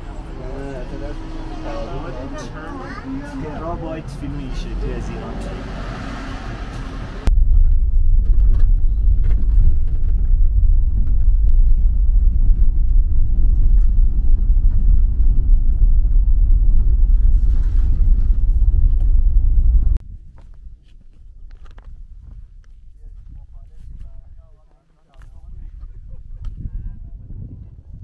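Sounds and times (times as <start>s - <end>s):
loud low rumble: 0.0s - 20.1s.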